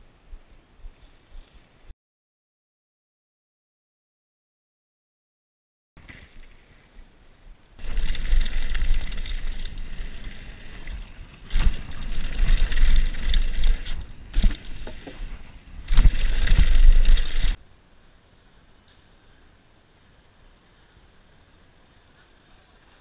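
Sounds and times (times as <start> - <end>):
bike tyres rattling on dirt: 7.8 - 17.6
wind buffeting microphone: 7.8 - 17.6.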